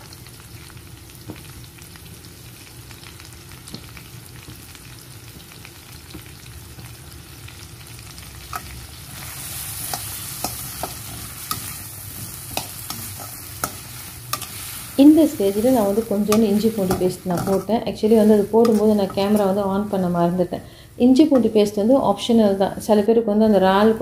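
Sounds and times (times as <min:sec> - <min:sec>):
vegetables sizzling in oil: 0:00.0 - 0:24.0
spatula scraping pan: 0:09.2 - 0:20.0.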